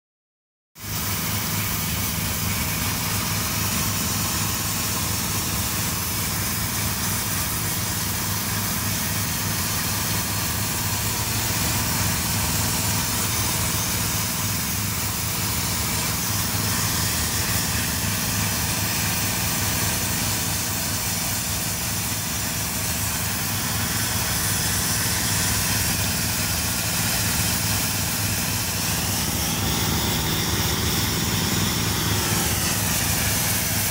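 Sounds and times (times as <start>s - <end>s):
pump engine humming: 0.8s - 33.9s
steam jet hissing: 8.3s - 33.9s.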